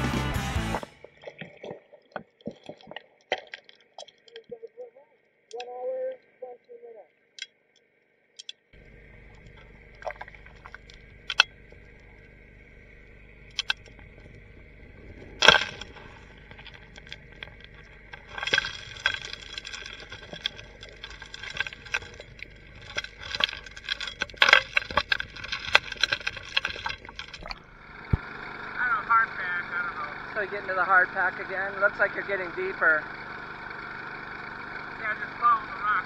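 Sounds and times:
suction dredge humming: 0.0 - 6.5, 8.4 - 36.0
rocks and gravel clattering underwater: 0.6 - 4.7, 8.4 - 28.3.

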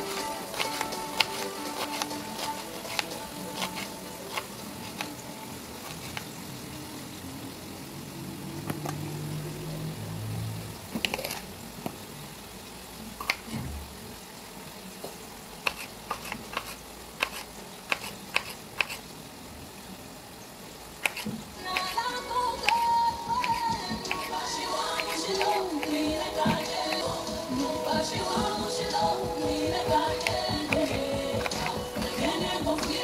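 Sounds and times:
knife cutting vegetables: 0.0 - 5.2, 5.8 - 6.3, 11.0 - 11.5, 15.6 - 19.0, 21.0 - 22.0, 22.6 - 33.0.

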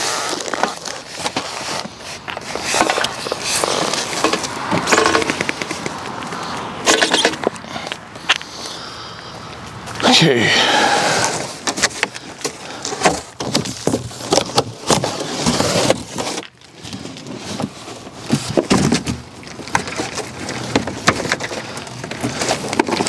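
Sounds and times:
cardboard box scraping and knocking: 0.0 - 5.9, 11.0 - 23.0.

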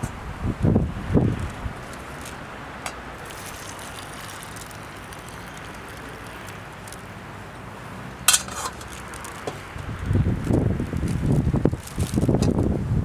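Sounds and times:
low wind noise: 0.0 - 13.0.

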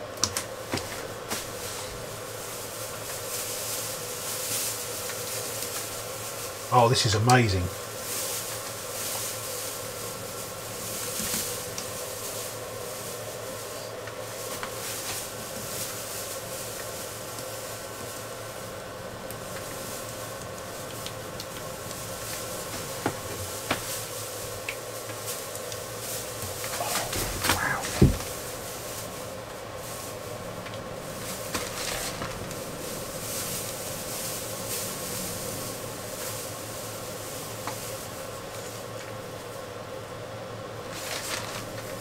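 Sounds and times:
steady hum: 0.0 - 42.0
brush rubbing on worktop: 25.9 - 29.2.

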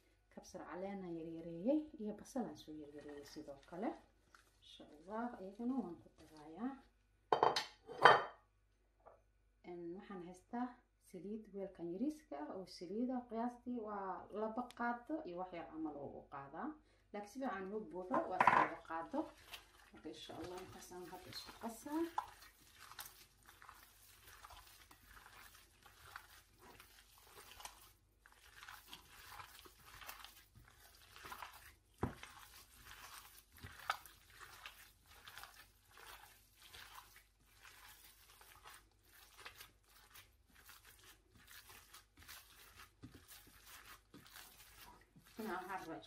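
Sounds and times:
wet squishing of kneaded meat: 0.0 - 7.1, 17.2 - 46.0.

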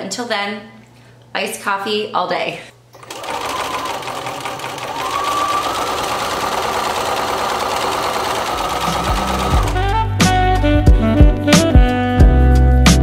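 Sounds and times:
sewing machine stitching: 3.0 - 10.0.

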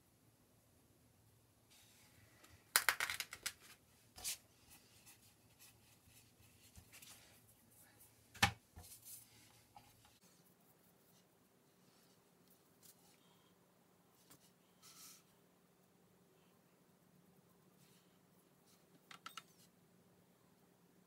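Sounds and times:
plastic tools clicking and tapping: 2.7 - 3.7.

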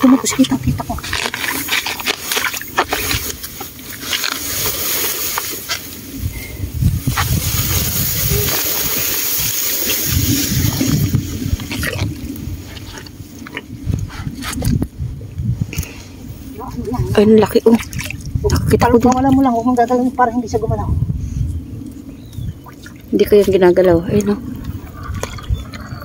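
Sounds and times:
leaves brushing along hull: 0.0 - 13.9.

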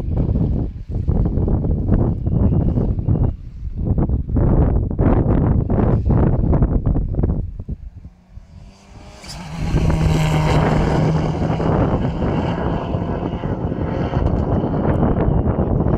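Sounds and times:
wind buffeting microphone: 0.0 - 15.9
rally car engine passing: 6.0 - 15.9.

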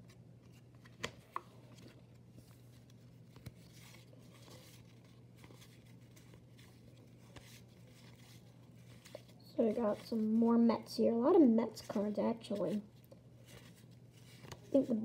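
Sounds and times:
low steady hum: 0.0 - 15.0
cardboard cards clicking and rustling: 0.1 - 9.4, 13.4 - 15.0.

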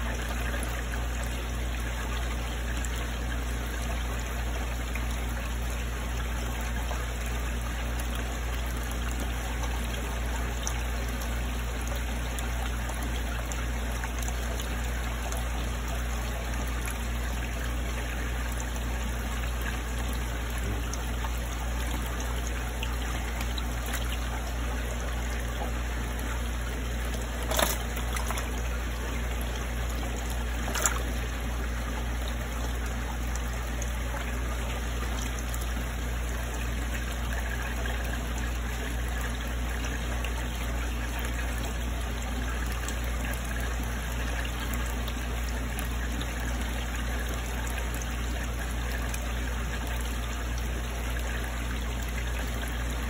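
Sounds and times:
water trickling: 0.0 - 53.0
low hum: 14.2 - 37.9.

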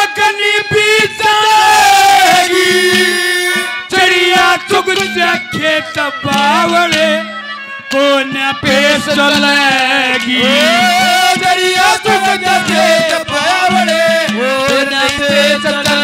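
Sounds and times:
man singing through a pa: 0.0 - 16.0
hand drum strokes: 2.2 - 5.3.

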